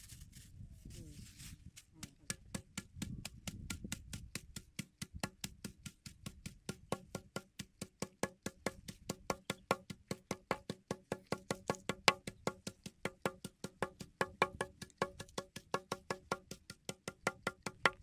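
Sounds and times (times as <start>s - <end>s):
rapid wooden knocks: 2.4s - 18.0s.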